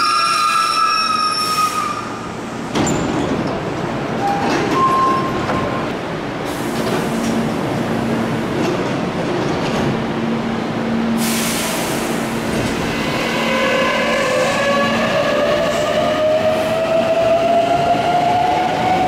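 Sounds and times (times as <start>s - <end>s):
train brake squeal: 0.0s - 2.2s
train doors opening clunk: 2.6s - 6.0s
air hiss: 11.2s - 12.5s.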